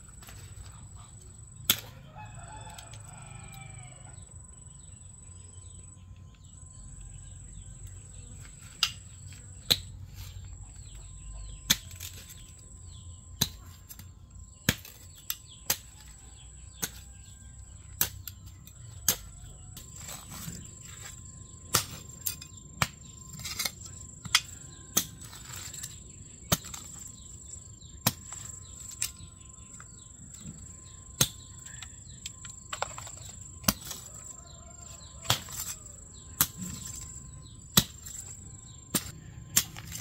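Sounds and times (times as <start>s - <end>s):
rooster crowing: 1.9s - 4.3s, 34.0s - 36.3s.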